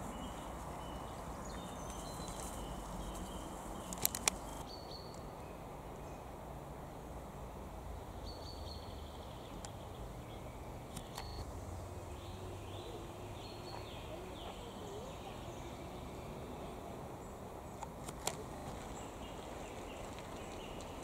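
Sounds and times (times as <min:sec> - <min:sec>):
faint bird chirps: 0:08.2 - 0:11.5, 0:12.1 - 0:21.0.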